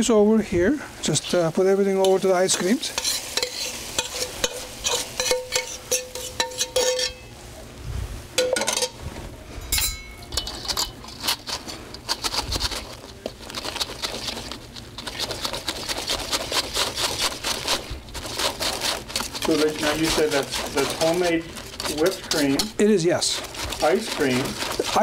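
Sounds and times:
metal spoon scraping a pan: 2.0 - 7.3, 8.4 - 9.0, 9.6 - 25.0
fast stirring scrape in bowl: 2.1 - 7.2, 10.4 - 25.0
pan ringing: 9.6 - 10.5.

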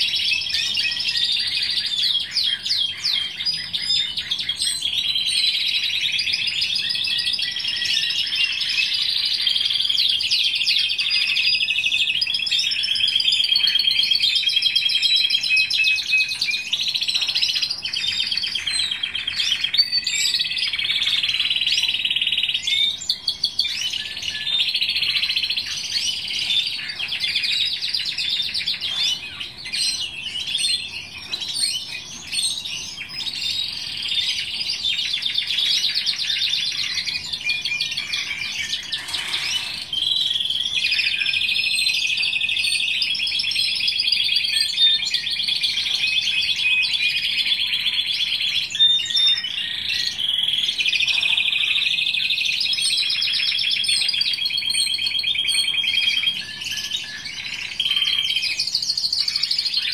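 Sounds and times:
canary singing trills and rolls: 36.6 - 41.6.

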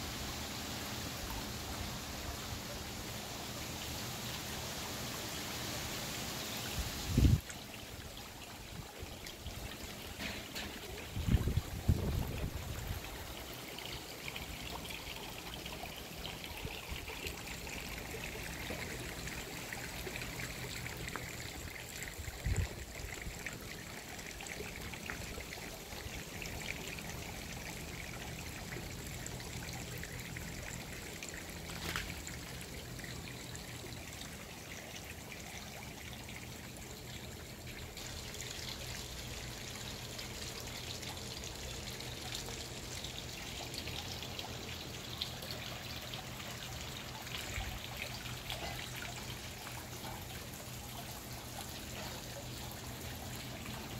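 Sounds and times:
fountain water trickling and splashing: 0.0 - 53.9.

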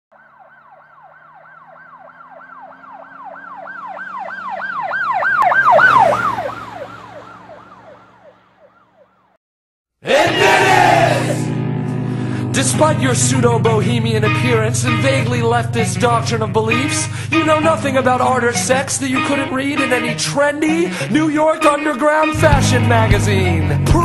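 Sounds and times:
emergency siren yelping: 0.1 - 9.4, 10.2 - 12.3, 13.0 - 22.2
loud rock music: 10.1 - 24.0.

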